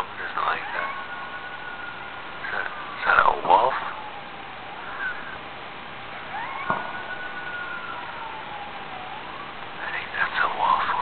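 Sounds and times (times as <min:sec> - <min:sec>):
wolf howling: 0:00.0 - 0:05.4, 0:06.2 - 0:09.5.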